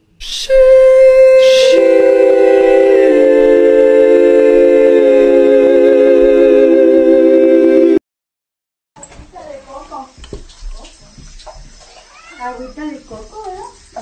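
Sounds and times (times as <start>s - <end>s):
choir-like held chord: 0.3s - 8.0s.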